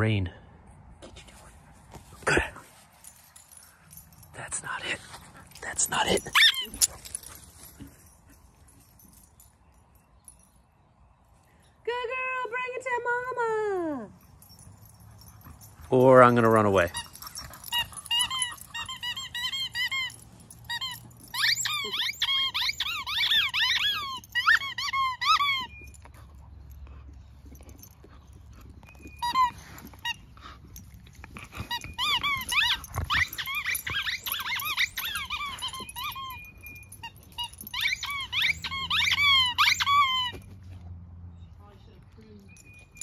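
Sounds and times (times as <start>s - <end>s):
toy squeaker squeaking: 5.7s - 7.0s, 16.2s - 26.2s, 28.6s - 40.6s
dog chewing rubber toy: 16.9s - 25.8s, 27.5s - 40.4s.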